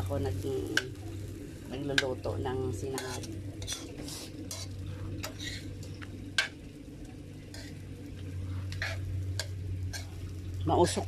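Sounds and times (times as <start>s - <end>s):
rice sizzling: 0.0s - 11.0s
metal spoon scraping metal pan: 2.9s - 5.7s, 7.5s - 7.8s, 8.8s - 10.2s.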